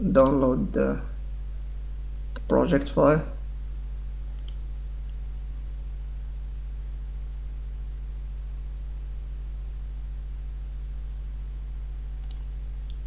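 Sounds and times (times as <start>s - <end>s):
electrical hum with hiss: 0.0s - 13.0s
mouse click: 4.3s - 4.6s, 12.2s - 13.0s.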